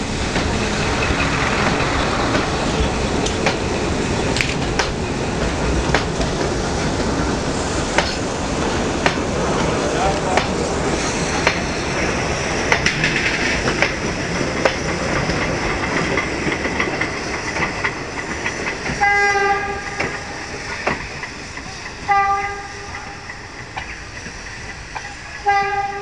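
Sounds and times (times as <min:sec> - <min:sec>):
train wheels clicking over rail joints: 0:00.0 - 0:26.0
steam whistle blasts: 0:19.0 - 0:20.3, 0:22.1 - 0:23.2, 0:25.4 - 0:26.0.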